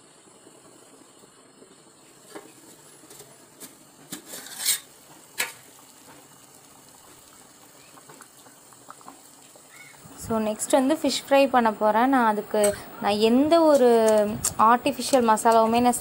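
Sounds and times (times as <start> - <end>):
faint steady hiss: 0.0 - 16.0
metal cookware clinking and scraping: 3.1 - 5.6.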